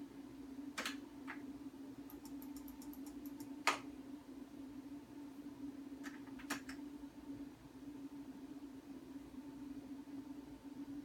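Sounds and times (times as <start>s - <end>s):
steady low hum: 0.0s - 11.0s
control panel keys clicking: 2.1s - 3.8s.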